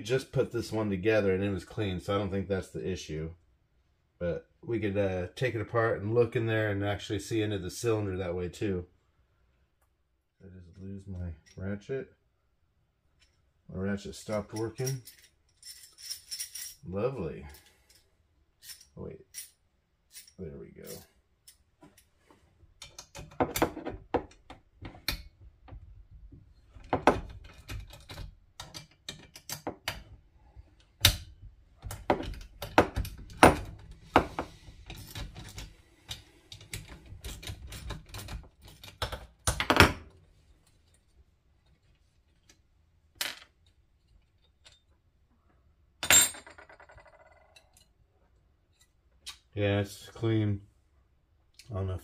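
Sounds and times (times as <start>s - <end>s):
metal parts clicking and clinking: 14.2s - 16.9s, 17.5s - 22.1s, 26.8s - 30.1s, 31.0s - 39.8s, 43.2s - 45.0s, 46.0s - 48.0s.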